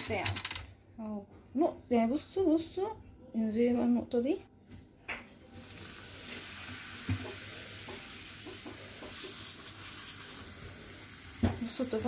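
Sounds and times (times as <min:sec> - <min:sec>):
baking soda fizzing: 0:05.5 - 0:12.0.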